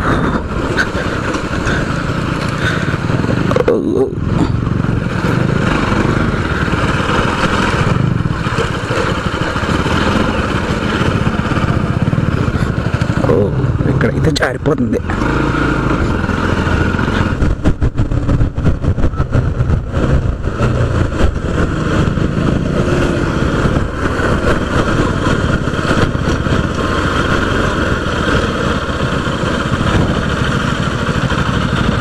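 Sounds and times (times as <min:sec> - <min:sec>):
motorcycle engine running: 0:00.0 - 0:32.0
wind noise on microphone: 0:16.0 - 0:32.0.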